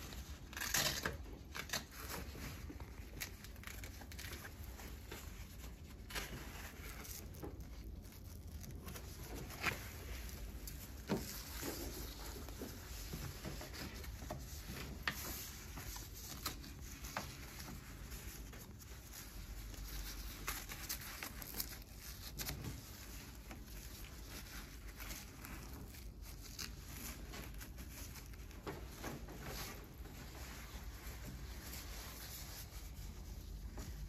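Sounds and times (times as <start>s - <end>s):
fabric rustling: 0.0s - 34.0s.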